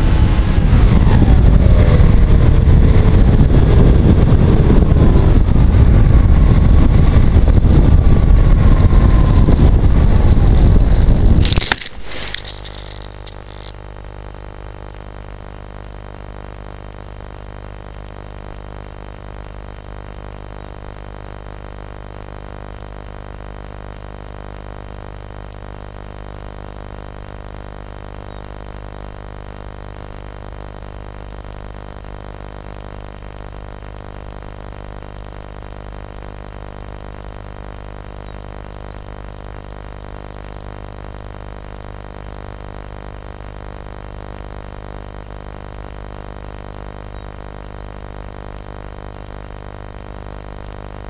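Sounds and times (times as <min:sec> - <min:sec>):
faint high chirps: 0:00.0 - 0:01.9, 0:18.6 - 0:22.3, 0:36.9 - 0:40.9, 0:46.0 - 0:49.6
steady electrical buzz: 0:00.0 - 0:51.0
steady tonal hum: 0:00.0 - 0:51.0
plane crashing into grass: 0:10.3 - 0:13.3.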